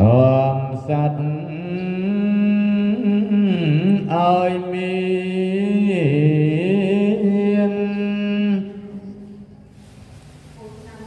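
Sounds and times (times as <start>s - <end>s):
monk chanting into a microphone: 0.0s - 9.4s.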